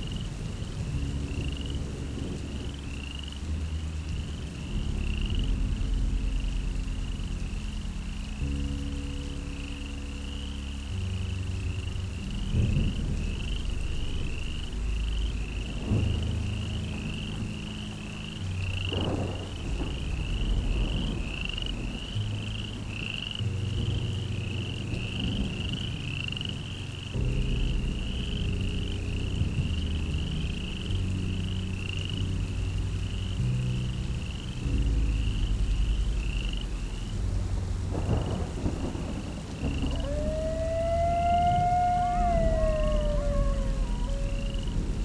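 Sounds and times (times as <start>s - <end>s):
low shifting drone: 27.2s - 45.0s
animal chirping: 39.8s - 44.6s.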